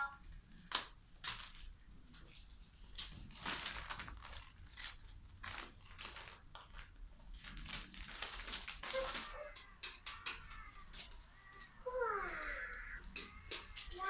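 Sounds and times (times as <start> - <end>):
puppies rustling on paper: 2.8 - 14.0
faint puppy squeaks: 8.8 - 13.5.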